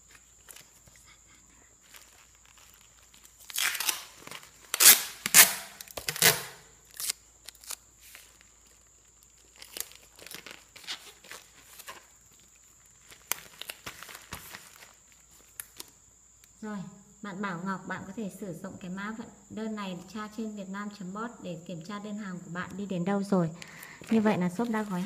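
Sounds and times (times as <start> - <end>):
tape and plastic wrap crinkling: 0.0 - 1.1, 1.8 - 16.6, 23.6 - 25.0
tape rasping and tearing: 2.0 - 12.1.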